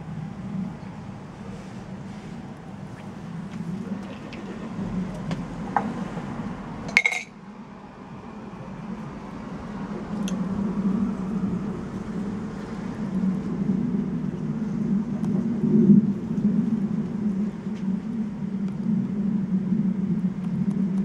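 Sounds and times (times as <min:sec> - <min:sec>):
jet aircraft drone: 0:00.0 - 0:21.0
glassy clink: 0:06.9 - 0:07.3.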